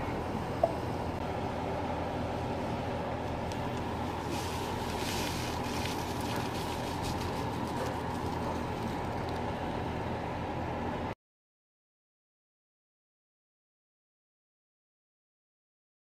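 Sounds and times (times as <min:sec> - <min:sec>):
steady low hum: 0:00.0 - 0:11.2
seasoning poured into pan: 0:04.1 - 0:08.4.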